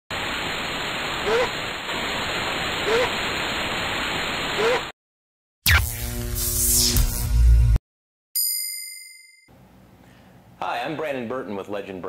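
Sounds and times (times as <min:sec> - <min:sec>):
television static hiss: 0:00.1 - 0:04.9.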